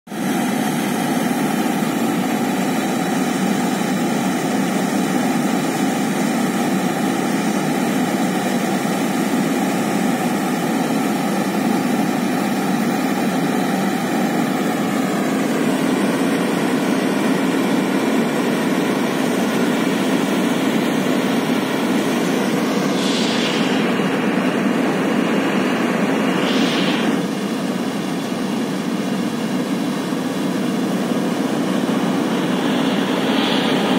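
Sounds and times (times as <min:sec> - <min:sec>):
jet engine hum and whine: 0:00.1 - 0:33.9
descending high whistle: 0:22.8 - 0:24.0.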